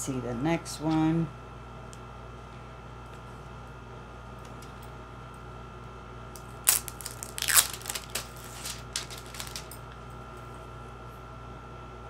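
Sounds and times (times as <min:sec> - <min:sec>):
plastic shrink-wrap crinkling: 0:06.4 - 0:09.8.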